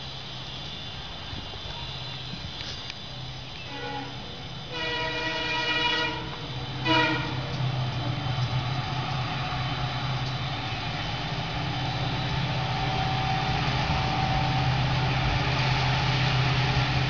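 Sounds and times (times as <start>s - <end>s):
train rumbling: 0.0s - 17.0s
locomotive horn blasts: 3.6s - 7.6s.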